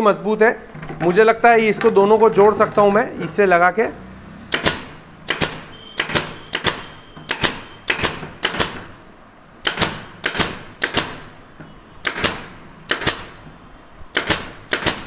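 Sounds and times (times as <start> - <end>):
pneumatic nailer firing into wood: 4.5 - 9.0, 9.6 - 11.4, 12.0 - 13.4, 14.1 - 15.0.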